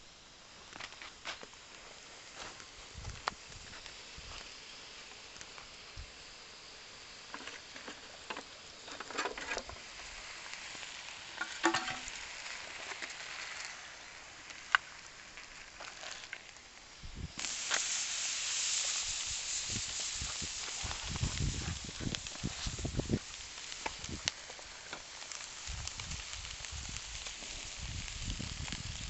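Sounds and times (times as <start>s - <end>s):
steady hiss: 0.0s - 29.0s
metal cookware clinking: 11.4s - 12.2s.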